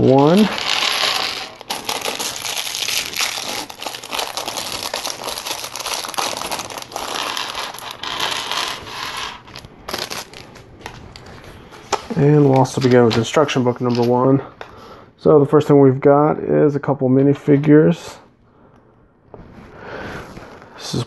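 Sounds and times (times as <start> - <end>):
plastic bag crinkling: 0.0 - 14.1.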